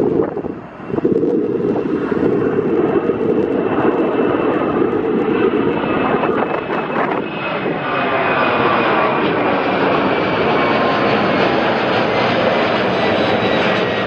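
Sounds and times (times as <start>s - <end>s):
faint high engine whine: 0.0s - 14.0s
jet airliner engines roaring: 0.0s - 14.0s.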